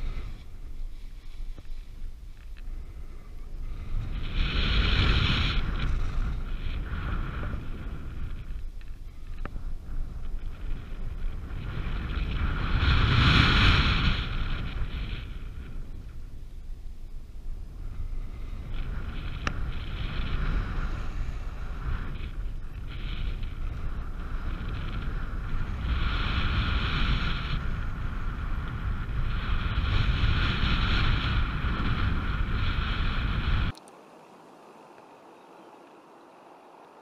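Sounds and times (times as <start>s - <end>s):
wind rushing over microphone: 0.0s - 33.8s
higher wind tone: 0.0s - 36.2s.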